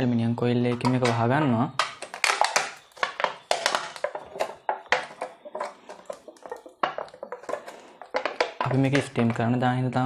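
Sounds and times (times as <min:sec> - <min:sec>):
aluminium foil crinkling: 0:01.8 - 0:09.4.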